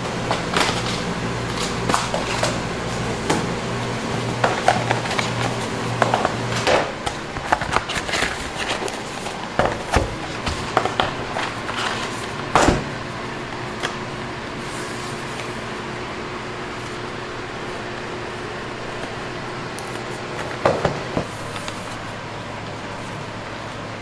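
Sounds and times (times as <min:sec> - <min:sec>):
steady hum: 0:00.0 - 0:24.0.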